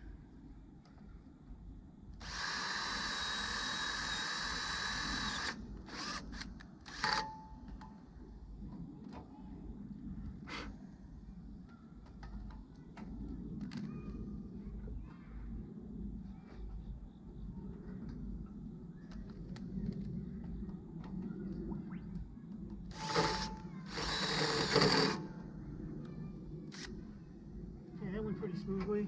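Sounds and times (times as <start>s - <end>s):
electric drill whining: 2.2s - 7.3s, 22.9s - 25.2s.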